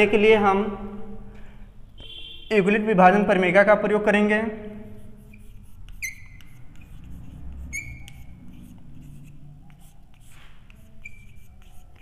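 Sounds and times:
chalk squeaks: 4.8 - 12.0
chalk writing on a blackboard: 4.8 - 12.0.

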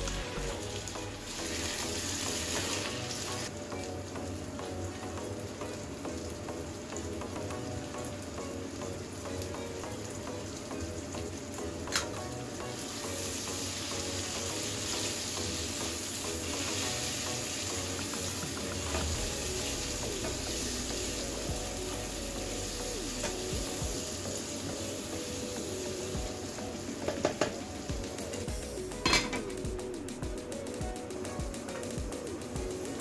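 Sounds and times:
vegetables sizzling in a wok: 0.0 - 33.0.

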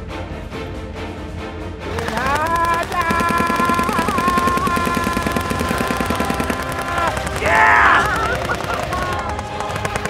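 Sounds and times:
airsoft gun firing full auto: 2.0 - 10.0
electric motors whining: 2.0 - 10.0.

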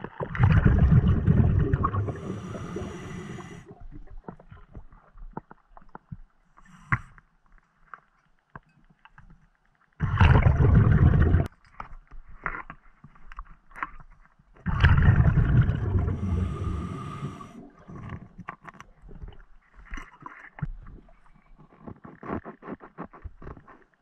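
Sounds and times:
exhaled bubbles rushing underwater: 0.0 - 4.0, 10.0 - 11.5, 14.7 - 18.0.

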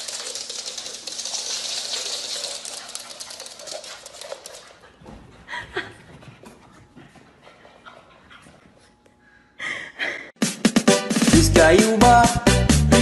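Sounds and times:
dog claws clicking on wooden floor: 0.0 - 4.9.

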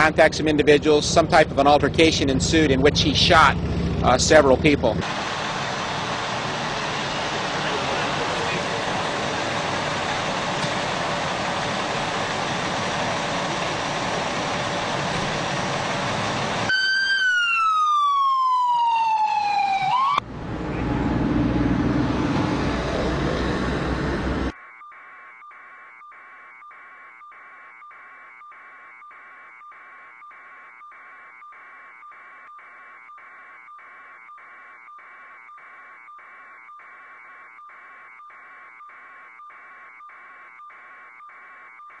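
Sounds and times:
rumbling engine: 0.0 - 16.7, 20.2 - 24.6
vehicle noise: 0.0 - 16.8, 19.4 - 41.8
emergency siren winding down: 0.0 - 42.0.

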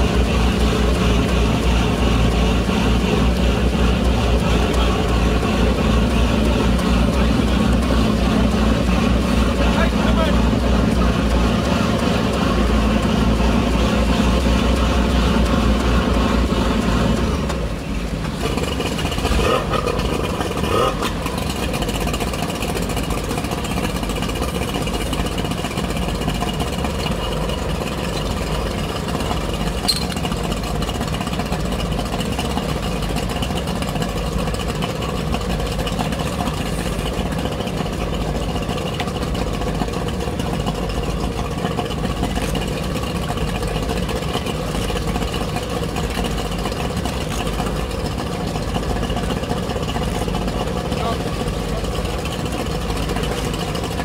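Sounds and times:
diesel engines idling: 0.0 - 54.0.

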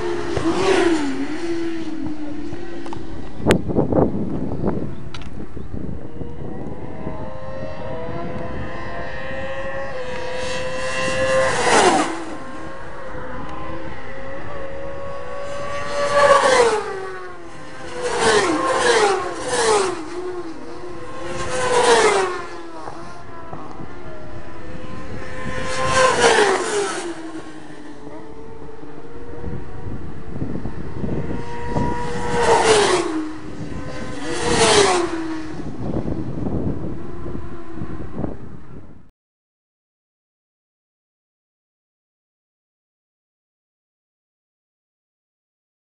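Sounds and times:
racing motorbikes passing: 0.0 - 38.8.

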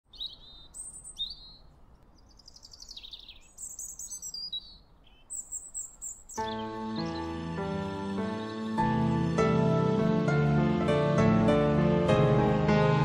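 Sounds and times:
songbirds chirping and singing: 0.1 - 10.3
music with held notes: 6.4 - 13.0.

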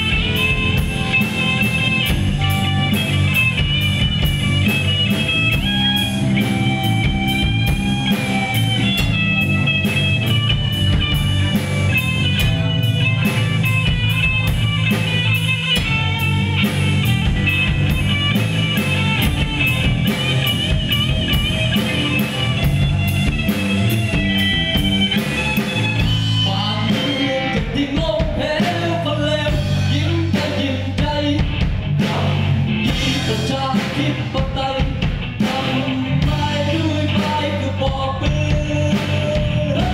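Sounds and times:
bass guitar: 0.0 - 39.9
drums: 0.0 - 39.9
electric guitar lead: 0.0 - 39.9
person singing: 26.4 - 39.9.

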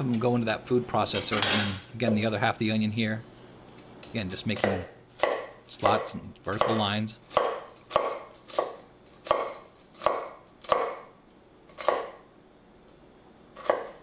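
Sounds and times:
knife slicing onion on wooden board: 4.5 - 11.1, 11.7 - 12.2, 13.5 - 14.0.

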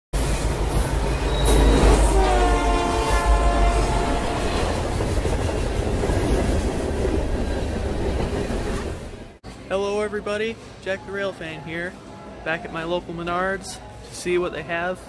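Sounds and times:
diesel freight locomotive rumbling past: 0.2 - 9.4
locomotive air horn blast: 1.4 - 4.8.

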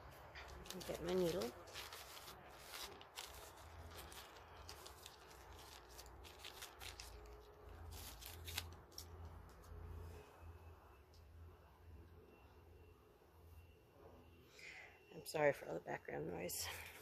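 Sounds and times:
thread and needle rustling: 0.0 - 9.8
low steady background hum: 0.0 - 17.0.

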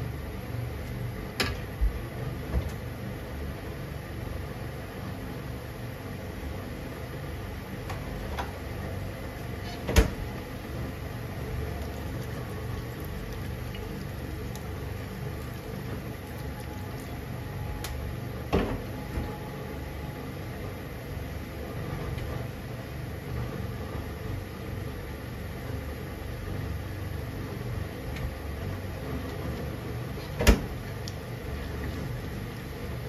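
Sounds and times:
food simmering in frying pan: 10.5 - 17.4.

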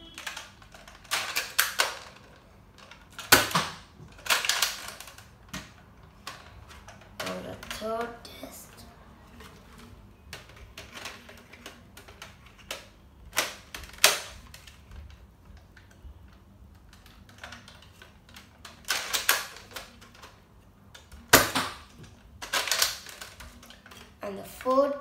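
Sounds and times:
plastic toy blaster clacks: 0.1 - 5.6, 10.3 - 15.2, 16.7 - 20.4, 21.0 - 24.9.

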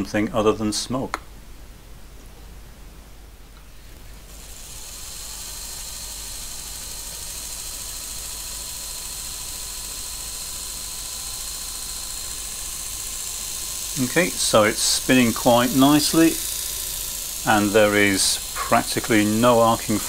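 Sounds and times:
electric motor whining: 3.8 - 20.0
high hiss: 4.0 - 20.0.

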